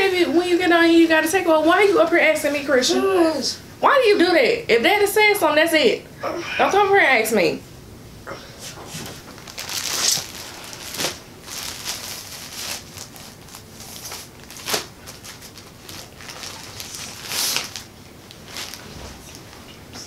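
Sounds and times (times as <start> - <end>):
plastic bags crinkling: 9.1 - 19.5.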